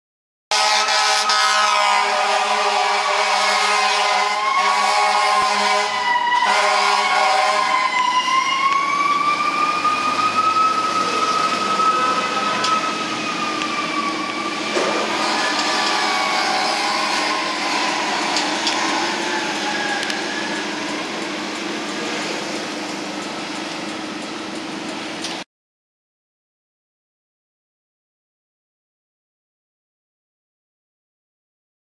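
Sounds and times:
city traffic noise: 0:00.5 - 0:25.4
fire engine siren wailing: 0:00.5 - 0:25.4.

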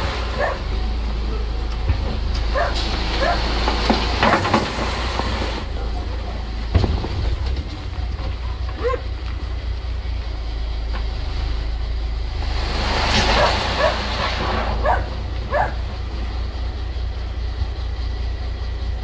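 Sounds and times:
truck engine rumbling: 0:00.0 - 0:19.0
dog barking: 0:00.3 - 0:00.7, 0:02.5 - 0:03.5, 0:08.8 - 0:09.1, 0:13.4 - 0:15.8.

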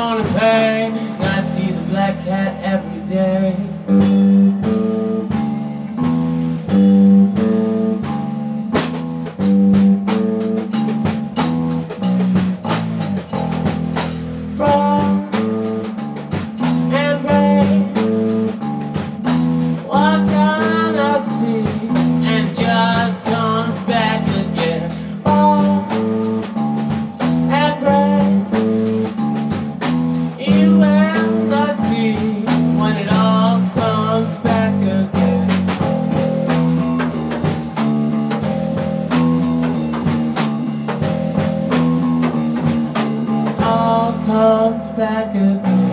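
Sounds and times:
electric guitar riff: 0:00.0 - 0:34.5
bass guitar: 0:00.0 - 0:45.9
drum kit: 0:00.0 - 0:45.9
guitar lead with bent notes: 0:00.0 - 0:45.9.

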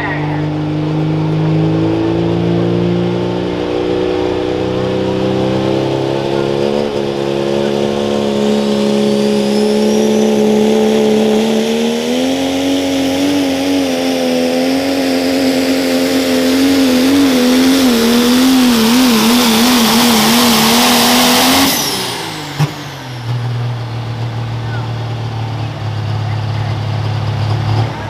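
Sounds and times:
loud diesel engine drone: 0:00.0 - 0:28.0.

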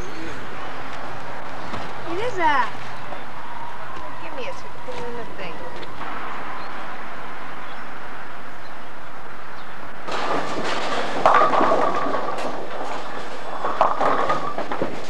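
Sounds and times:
bowling alley din: 0:00.0 - 0:15.0
steady even noise: 0:05.9 - 0:10.1
bowling ball rolling down lane: 0:10.0 - 0:15.0
bowling pins crashing: 0:10.0 - 0:15.0.

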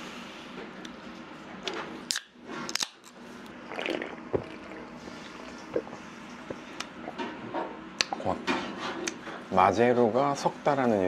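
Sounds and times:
person gulping soda: 0:03.6 - 0:07.2.

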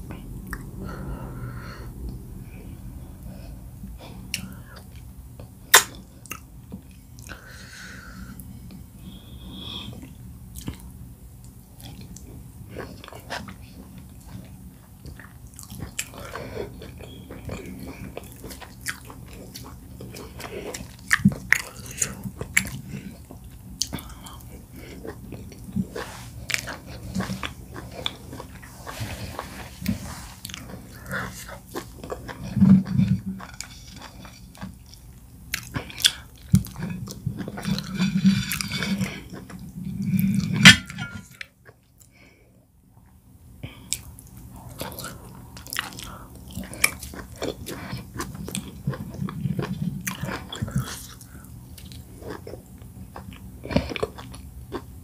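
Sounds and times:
low swallowing: 0:00.0 - 0:04.9
chewing: 0:08.7 - 0:42.2, 0:43.7 - 0:55.0.

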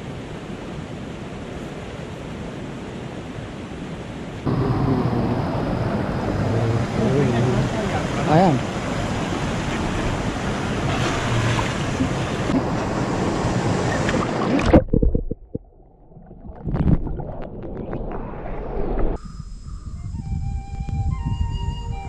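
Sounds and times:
river rushing over rocks: 0:00.0 - 0:14.8
low rumble: 0:04.5 - 0:07.0, 0:14.7 - 0:21.4
wind on microphone: 0:16.5 - 0:22.0.

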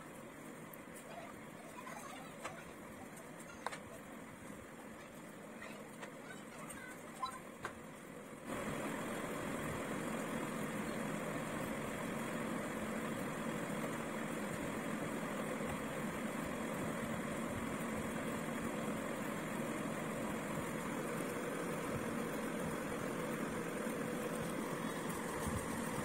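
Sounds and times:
mechanical drone with hiss: 0:08.2 - 0:26.0.

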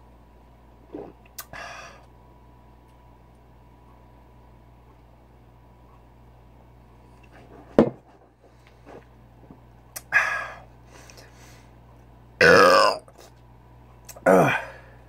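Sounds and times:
throaty vocal sound: 0:12.4 - 0:13.1, 0:14.1 - 0:14.9
man gasping harshly: 0:14.2 - 0:15.0.

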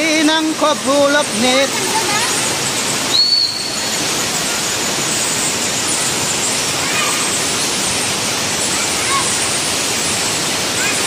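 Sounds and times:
stream rushing over boulders: 0:00.0 - 0:11.0
high whistle-like tone: 0:03.1 - 0:03.9.

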